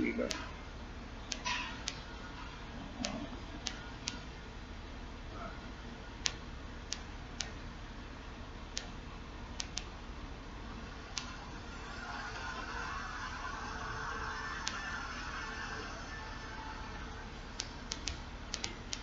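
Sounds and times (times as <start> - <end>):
low hum: 0.0 - 19.0
sharp short clicks: 1.3 - 2.1, 3.0 - 4.3, 6.2 - 7.6, 8.8 - 9.0, 9.6 - 9.9, 17.6 - 19.0.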